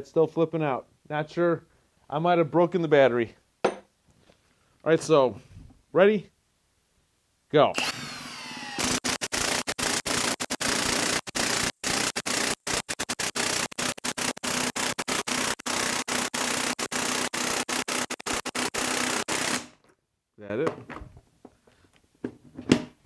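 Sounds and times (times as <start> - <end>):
impact wrench hammering: 7.8 - 19.8.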